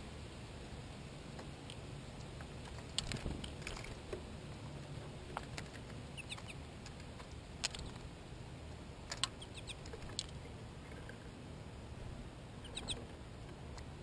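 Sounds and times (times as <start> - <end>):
birds pecking on plastic feeder: 1.4 - 4.2, 5.0 - 8.1, 9.0 - 11.3.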